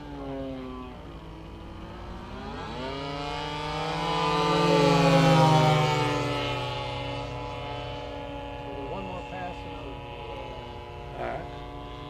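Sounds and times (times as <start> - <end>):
model airplane engines buzzing: 0.0 - 12.0.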